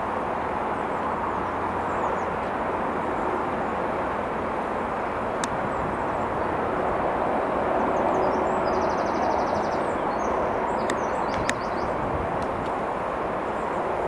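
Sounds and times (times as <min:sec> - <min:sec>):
sharp clicks: 0:10.8 - 0:11.6.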